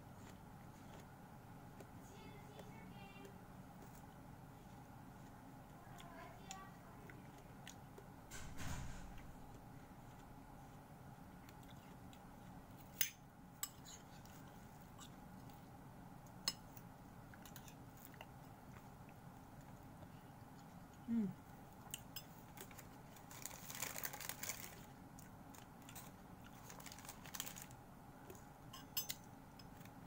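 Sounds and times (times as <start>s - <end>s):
chewing crisp fruit: 0.0s - 8.2s, 9.1s - 13.0s, 13.9s - 28.6s
plastic crinkling: 22.6s - 25.0s, 25.6s - 27.8s.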